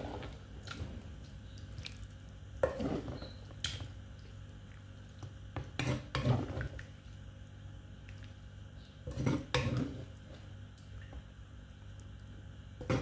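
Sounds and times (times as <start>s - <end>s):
spoon stirring wet food: 0.0s - 7.1s.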